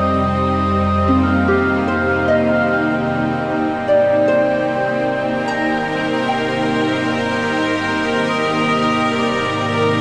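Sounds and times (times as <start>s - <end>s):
background music with held notes: 0.0s - 10.0s.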